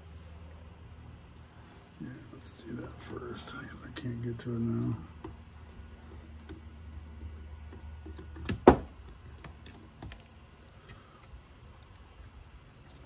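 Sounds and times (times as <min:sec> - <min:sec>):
low steady hum: 0:00.0 - 0:13.0
small clicks and taps: 0:05.2 - 0:11.9.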